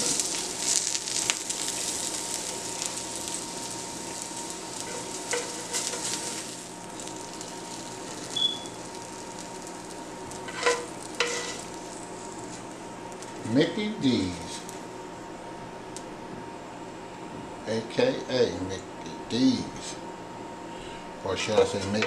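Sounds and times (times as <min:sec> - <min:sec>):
onions sizzling in a frying pan: 0:00.0 - 0:15.0.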